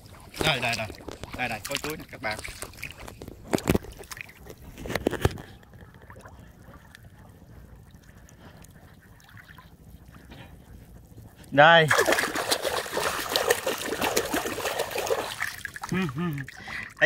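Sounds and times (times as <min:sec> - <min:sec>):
water trickling and sloshing: 0:00.0 - 0:17.0
hand splashing in water: 0:11.9 - 0:16.6.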